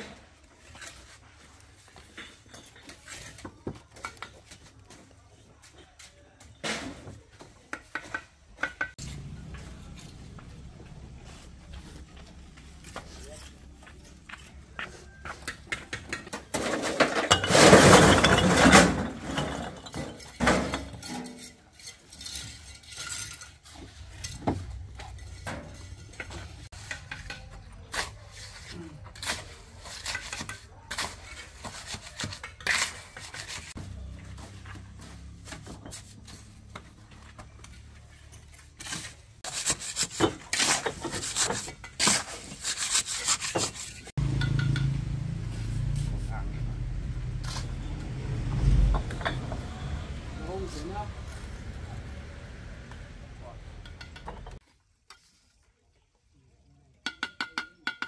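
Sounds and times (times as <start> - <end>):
hard objects knocking and clattering: 6.6 - 10.4, 13.8 - 27.7, 43.4 - 45.1, 53.7 - 54.6.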